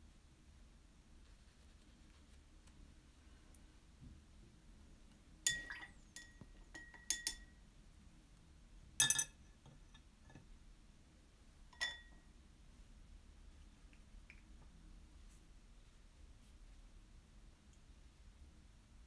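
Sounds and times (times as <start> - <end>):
paintbrush tapping glass jar: 5.5 - 7.5, 11.8 - 12.2.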